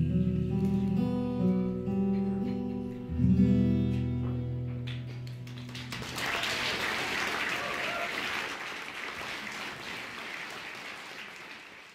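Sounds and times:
acoustic guitar strummed chords: 0:00.0 - 0:05.2
audience applause: 0:05.1 - 0:11.9.

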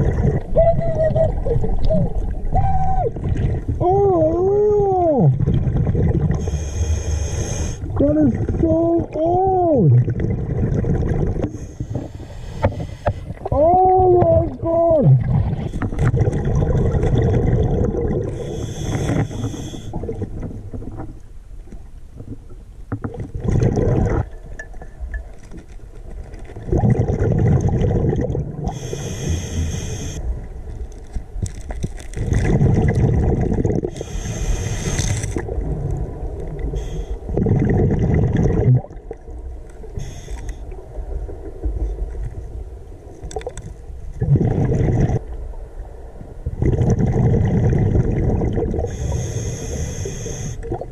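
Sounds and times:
bubbling exhales underwater: 0:00.0 - 0:03.8, 0:07.8 - 0:11.6, 0:13.4 - 0:20.4, 0:23.0 - 0:24.4, 0:26.6 - 0:29.9, 0:32.2 - 0:34.4, 0:36.6 - 0:39.2, 0:44.2 - 0:45.4, 0:46.5 - 0:49.3
hissing regulator inhales: 0:06.4 - 0:07.8, 0:18.3 - 0:20.0, 0:28.7 - 0:30.2, 0:33.9 - 0:35.4, 0:40.0 - 0:40.6, 0:48.9 - 0:50.6.

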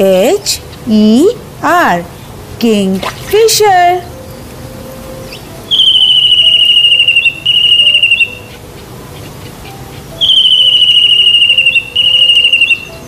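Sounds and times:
faint background music: 0:00.0 - 0:13.0
kingfisher trilled whistle: 0:05.2 - 0:08.6, 0:10.1 - 0:13.0.

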